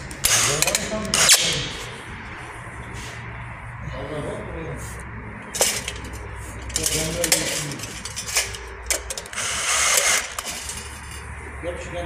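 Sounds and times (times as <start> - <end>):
cordless drill whirring: 0.0 - 1.3, 9.3 - 11.1.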